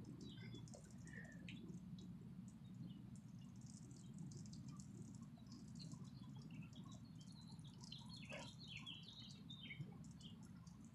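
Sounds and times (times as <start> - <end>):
birds chirping: 0.0 - 10.9
low steady rumble: 0.0 - 10.9.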